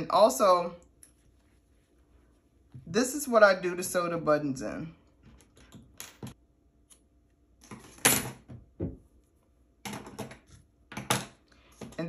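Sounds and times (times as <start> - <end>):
tools handled on wooden table: 5.2 - 6.4.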